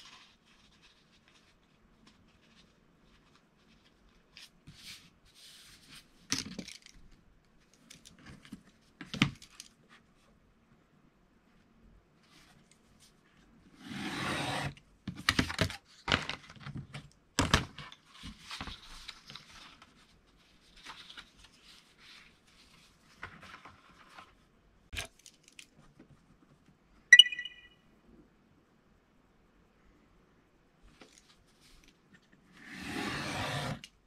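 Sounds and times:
craft knife cutting foam board: 0:13.8 - 0:14.7, 0:32.6 - 0:33.9.

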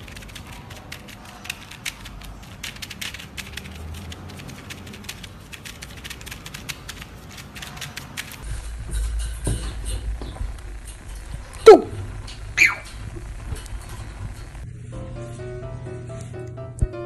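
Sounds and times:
rapid sharp clicking: 0:00.0 - 0:08.5
low rumble: 0:08.4 - 0:14.9.

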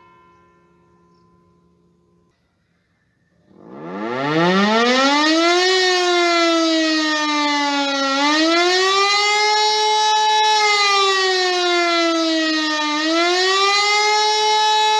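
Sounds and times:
civil defence siren wailing: 0:03.4 - 0:14.9.

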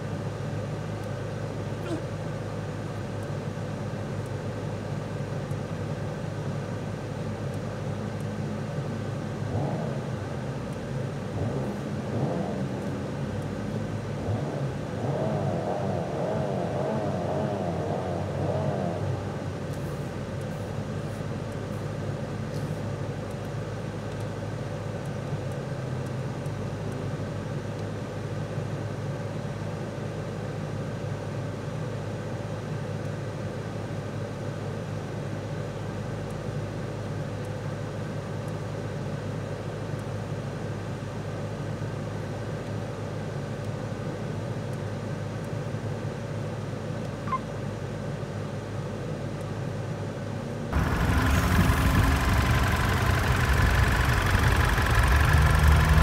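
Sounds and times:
car engine idling: 0:50.7 - 0:56.0.

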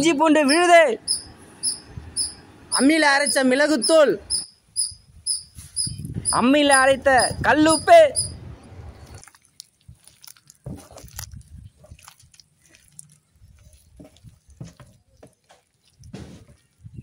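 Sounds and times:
hands kneading paste on metal tray: 0:09.2 - 0:16.9.

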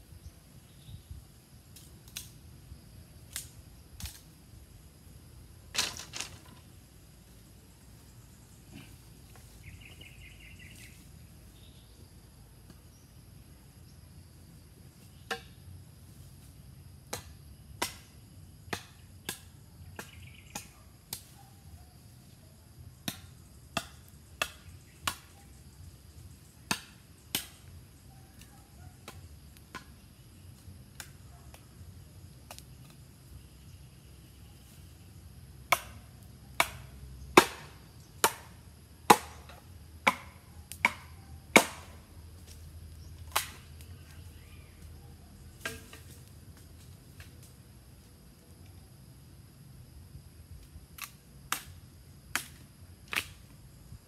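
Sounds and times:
blade chopping wood: 0:35.7 - 0:36.0, 0:36.6 - 0:36.8, 0:37.4 - 0:38.5, 0:39.1 - 0:42.0, 0:43.3 - 0:43.6, 0:45.6 - 0:46.2.

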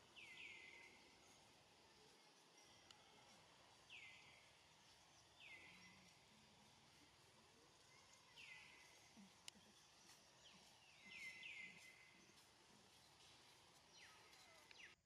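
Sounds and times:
faint outdoor ambience: 0:00.0 - 0:15.0
high chirping calls: 0:07.8 - 0:15.0.

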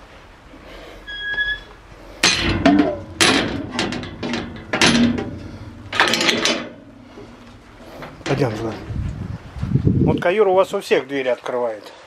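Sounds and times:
high squeak: 0:01.0 - 0:01.8
metal gate clanking and rattling: 0:01.1 - 0:09.0
sharp knocks: 0:02.2 - 0:08.6.

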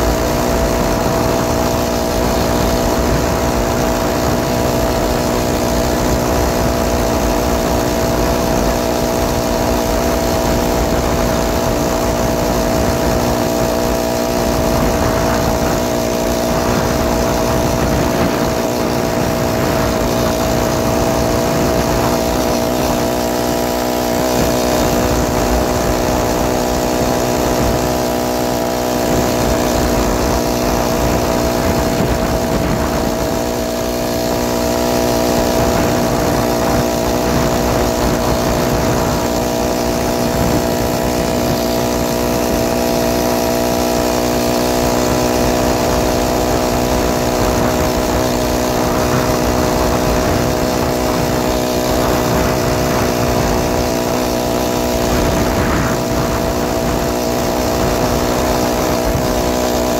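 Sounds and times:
small engine running steadily: 0:00.0 - 0:59.9
wind and road noise: 0:00.0 - 0:59.9.

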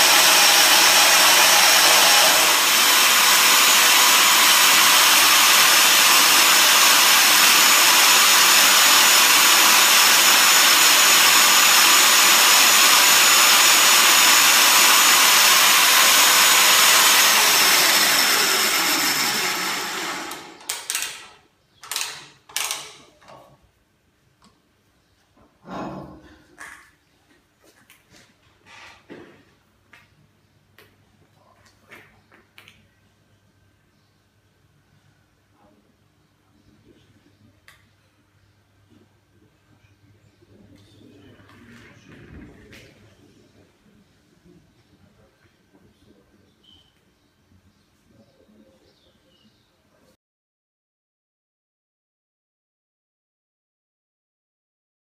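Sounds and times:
milling machine whining: 0:00.0 - 0:21.2.

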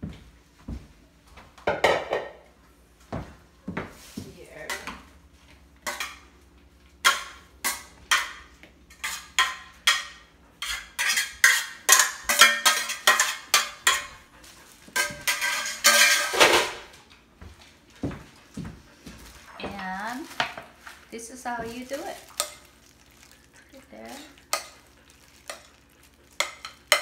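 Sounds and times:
metal colander clanking: 0:15.0 - 0:16.8.

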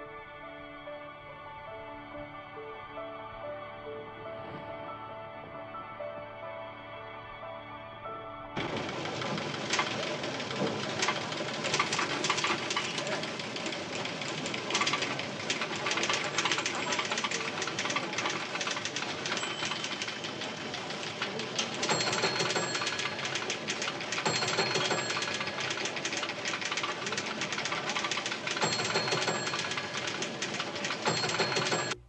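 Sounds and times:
office machines clattering: 0:08.6 - 0:32.0.

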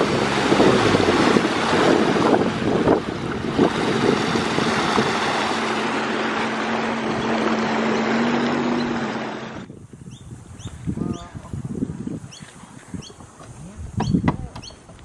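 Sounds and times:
rushing water: 0:00.0 - 0:09.8
jet ski engine hum: 0:00.0 - 0:15.0
wind on microphone: 0:00.0 - 0:15.0.

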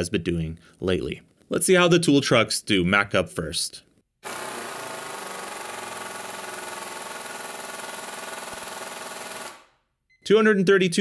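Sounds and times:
impact wrench hammering: 0:04.2 - 0:09.7.

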